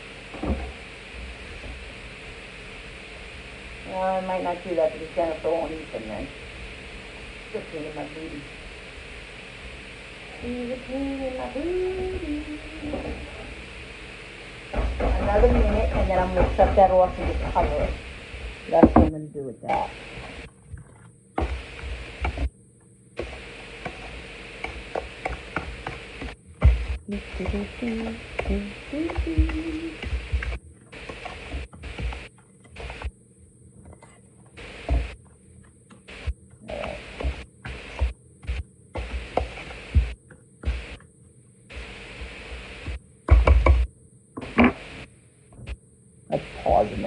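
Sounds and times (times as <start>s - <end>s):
background hiss: 0.0s - 47.0s
low thumps: 10.4s - 20.8s, 24.7s - 33.1s.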